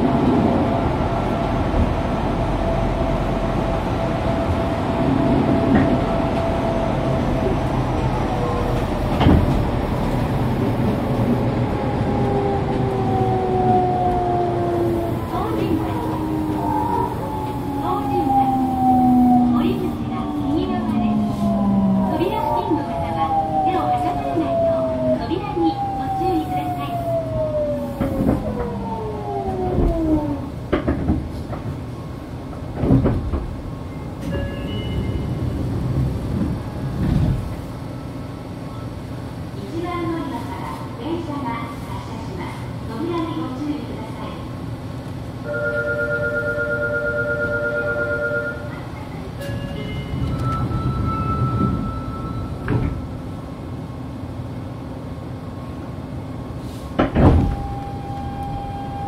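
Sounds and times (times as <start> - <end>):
train wheels rumbling on rails: 0.0 - 45.4, 48.8 - 59.0
train car thumps: 9.0 - 10.0, 30.7 - 31.8, 32.5 - 34.4, 56.9 - 57.8
train motor tones falling in pitch: 57.4 - 59.0.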